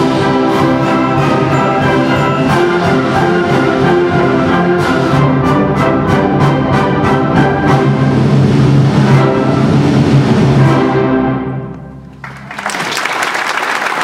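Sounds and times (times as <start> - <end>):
audience applause: 12.2 - 14.0.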